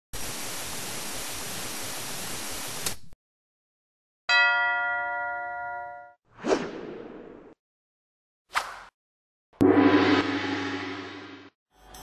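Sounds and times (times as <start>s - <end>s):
bell-like chime ringing: 4.3s - 6.2s.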